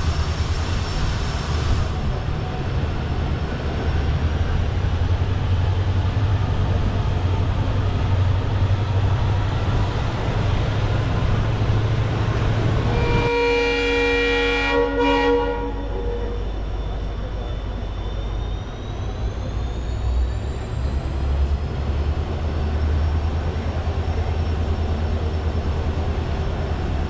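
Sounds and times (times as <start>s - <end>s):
train rumbling along track: 0.0s - 27.0s
train horn blast: 12.8s - 16.5s.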